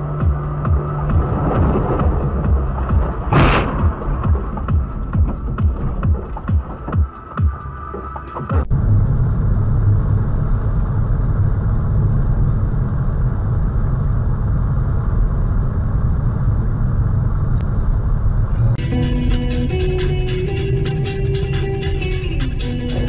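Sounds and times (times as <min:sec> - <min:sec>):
music: 0:00.0 - 0:08.7, 0:18.6 - 0:23.0
car engine and road noise: 0:00.0 - 0:23.0.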